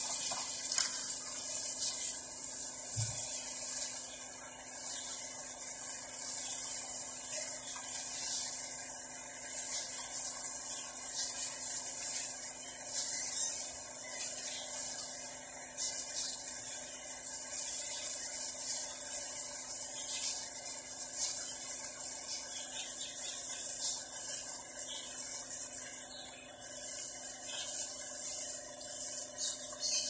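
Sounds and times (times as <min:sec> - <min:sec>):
gloved hands rubbing fish in tray: 0:23.4 - 0:29.8.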